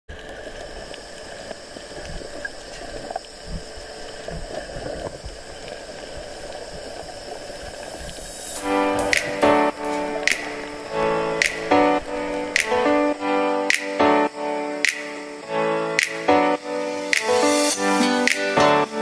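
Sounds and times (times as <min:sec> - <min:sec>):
water sloshing and bubbling: 0:00.1 - 0:08.6.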